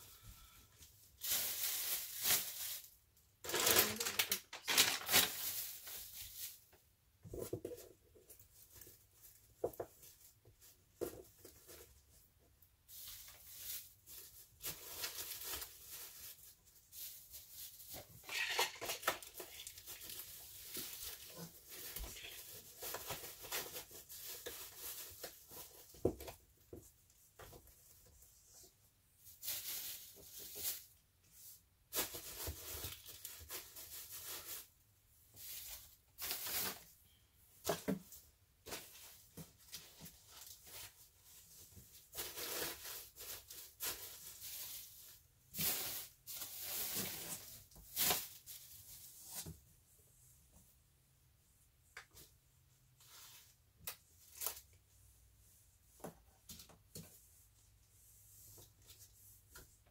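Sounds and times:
plastic bags rustling: 1.0s - 6.8s, 12.8s - 26.2s, 29.2s - 31.0s, 31.9s - 37.0s, 38.6s - 49.2s.

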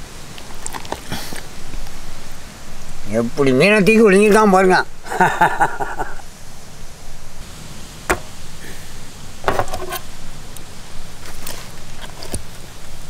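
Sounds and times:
steady background hiss: 0.0s - 13.0s
fish knocking on metal tray: 8.1s - 8.4s, 9.5s - 9.9s.

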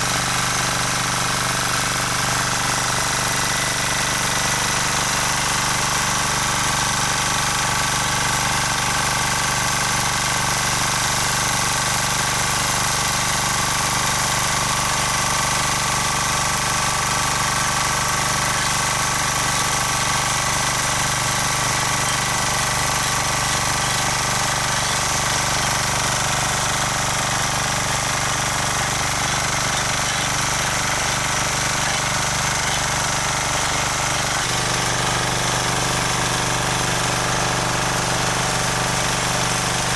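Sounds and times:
rotary tiller engine running: 0.0s - 39.9s
tines milling soil: 12.0s - 39.9s.

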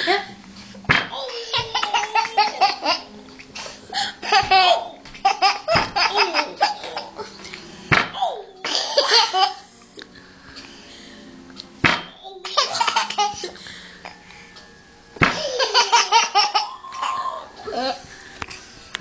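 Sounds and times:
baby laughing: 1.1s - 7.5s, 8.1s - 9.7s, 12.2s - 13.6s, 15.3s - 18.0s.

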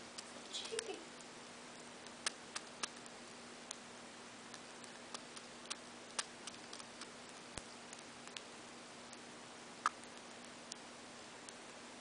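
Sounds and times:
faint steady hum: 0.0s - 12.0s
bird beak pecking clicks: 2.0s - 3.8s, 4.5s - 8.5s.

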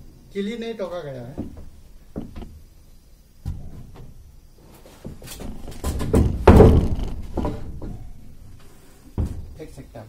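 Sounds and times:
wooden plank knocking on railing: 5.8s - 8.0s.

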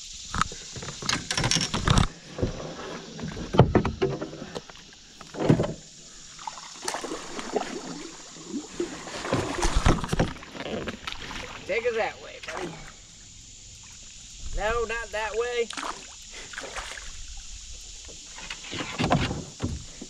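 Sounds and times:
paddle splashing in water: 4.1s - 12.9s, 15.3s - 20.0s.

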